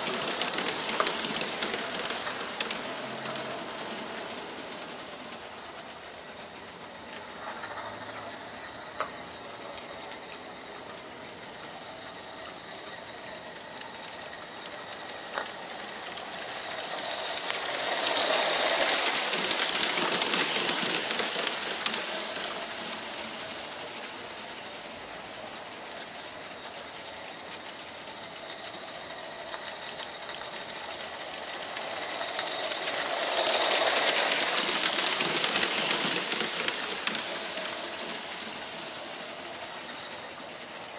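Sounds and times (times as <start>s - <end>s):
steam locomotive exhaust beat: 0.0s - 40.9s
wheels on track: 0.0s - 40.9s.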